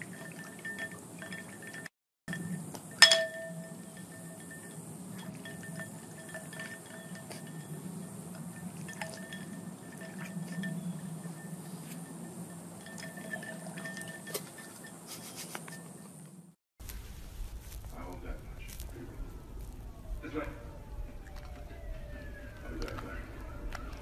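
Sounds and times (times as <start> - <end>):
puppy lapping water: 0.0 - 1.9, 4.0 - 14.4
ice clinking against glass: 0.0 - 16.1.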